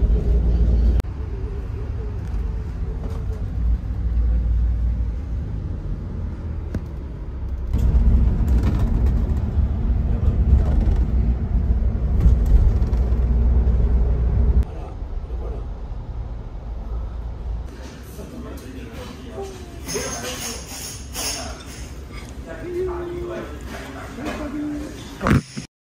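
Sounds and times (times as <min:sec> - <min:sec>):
engine and road rumble: 0:00.0 - 0:18.8.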